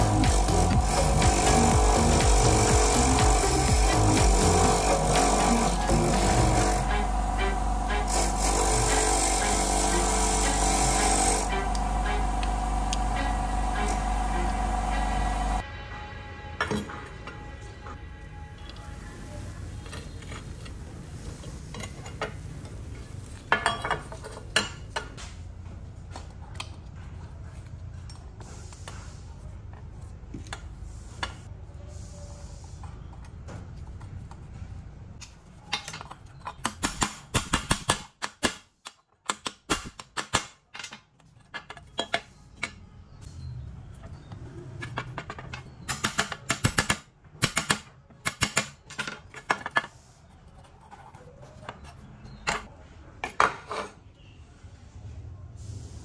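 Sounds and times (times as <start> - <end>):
steady low hum: 0.0 - 16.5.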